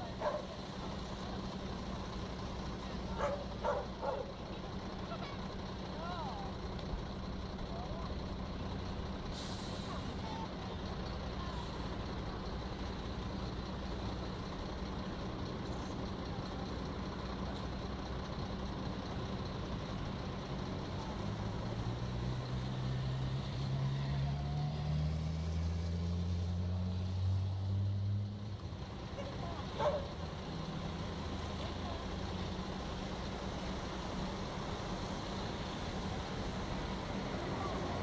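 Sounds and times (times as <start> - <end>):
diesel engine idling: 0.0 - 25.2, 28.1 - 38.0
approaching vehicle engines: 0.0 - 38.0
air brakes hissing: 9.3 - 10.2.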